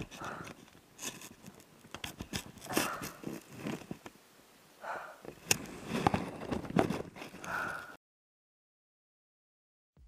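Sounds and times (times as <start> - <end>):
leaves rustling against camera: 0.0 - 4.2.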